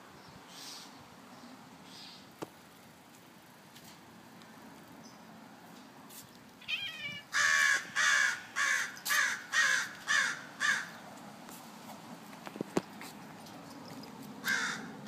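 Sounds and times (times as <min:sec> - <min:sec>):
crow cawing: 0:06.7 - 0:11.0, 0:14.4 - 0:15.0.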